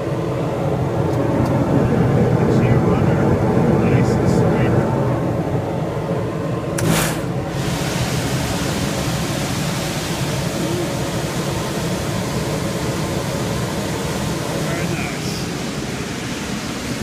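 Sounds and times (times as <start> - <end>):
rooftop air unit running: 0.0 - 17.0
brief whoosh: 6.8 - 7.4.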